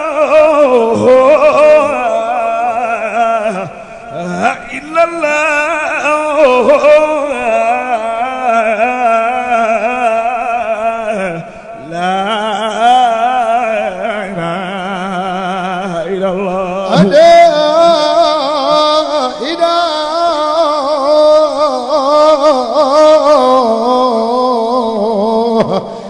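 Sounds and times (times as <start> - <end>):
man chanting into a microphone: 0.0 - 26.0.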